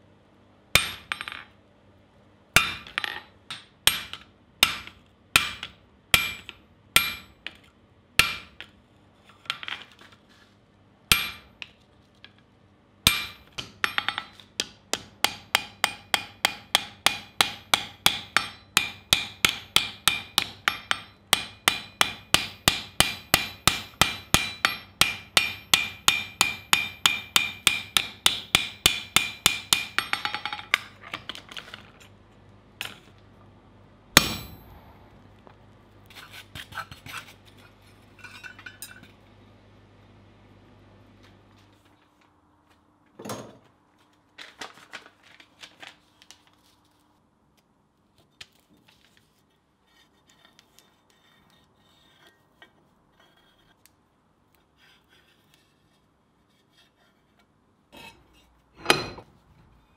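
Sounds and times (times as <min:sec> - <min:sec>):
hammer striking hot steel: 0:00.8 - 0:01.4, 0:02.6 - 0:07.4, 0:08.2 - 0:08.6, 0:11.1 - 0:11.5, 0:13.1 - 0:30.4, 0:34.2 - 0:34.9
anvil ringing: 0:34.2 - 0:34.8.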